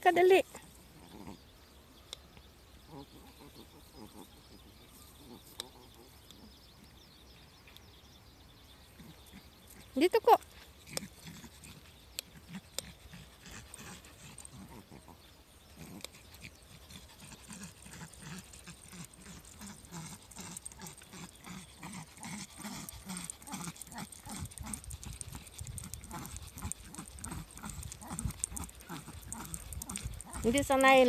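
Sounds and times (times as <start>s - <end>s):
small dog panting: 9.0s - 31.0s.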